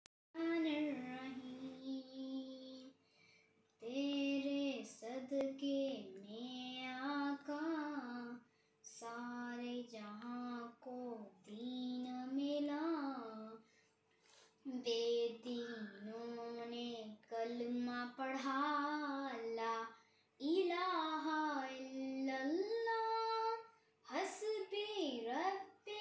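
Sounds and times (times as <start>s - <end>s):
girl singing: 0.4s - 3.2s, 3.8s - 13.7s, 14.3s - 26.0s
girl breathing: 2.9s - 3.7s, 8.4s - 8.9s, 13.6s - 14.7s, 20.0s - 20.4s.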